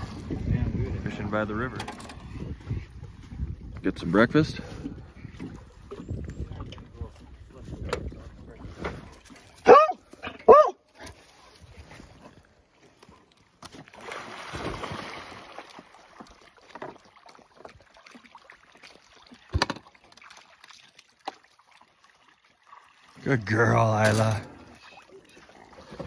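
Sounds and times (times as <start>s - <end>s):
dog barking: 9.6s - 10.8s
dog splashing into water: 13.6s - 21.5s.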